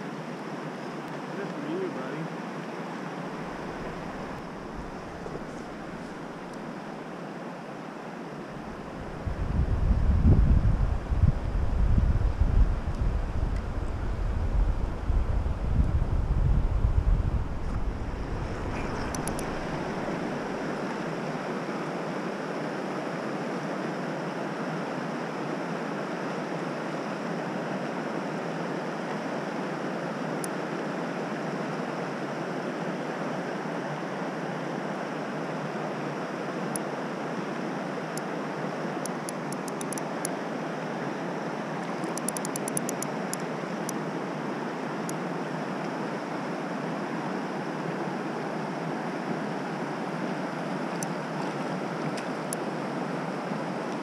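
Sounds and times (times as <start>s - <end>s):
stream water flowing: 0.0s - 9.4s, 17.2s - 54.0s
faint rapid clicking: 18.8s - 19.6s, 39.0s - 40.4s, 41.8s - 44.0s.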